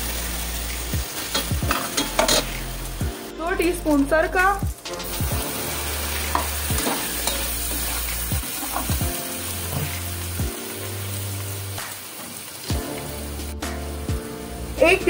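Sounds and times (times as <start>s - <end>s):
chicken sizzling in hot oil: 0.0s - 15.0s
metal spoon stirring in pot: 1.3s - 2.6s, 6.3s - 9.1s.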